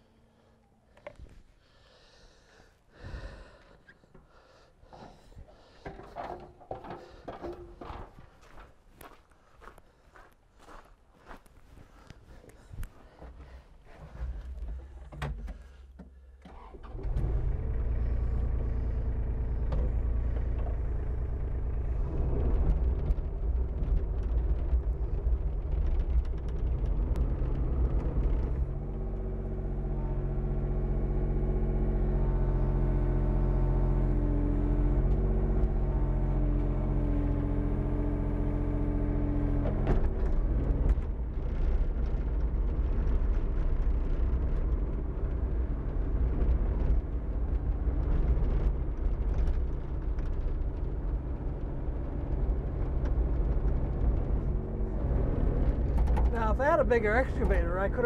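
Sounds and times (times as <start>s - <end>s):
excavator diesel engine running: 12.7s - 58.0s.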